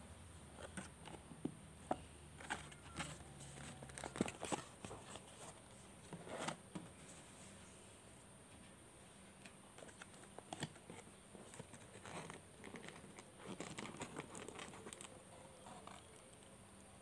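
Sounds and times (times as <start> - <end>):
cardboard box crinkling: 2.4 - 5.6, 9.8 - 15.2.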